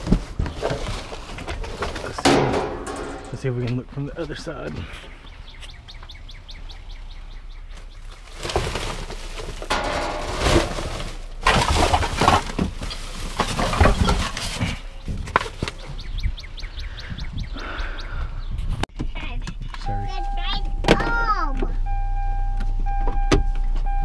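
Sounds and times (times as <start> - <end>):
plastic bags rustling: 0.0 - 3.4, 7.8 - 15.8
sharp knocks: 2.2 - 3.4.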